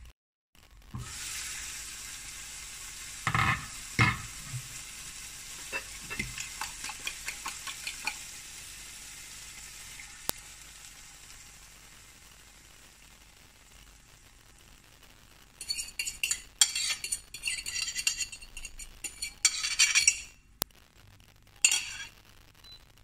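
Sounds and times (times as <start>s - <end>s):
potatoes sizzling in a frying pan: 0.6s - 23.0s
fork clinking against ceramic bowl: 15.6s - 20.4s, 21.7s - 22.1s.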